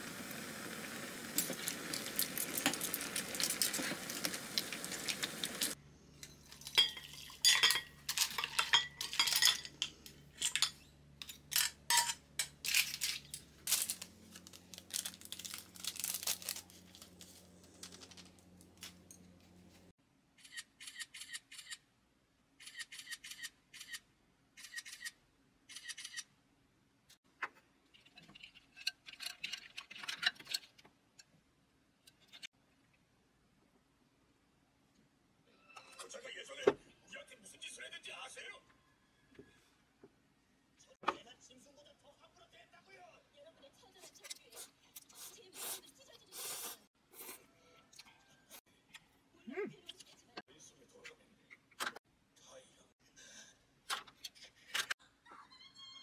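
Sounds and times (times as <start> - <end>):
food hissing in a pan: 0.0 - 5.8
utensils clinking on dishes: 1.4 - 14.0.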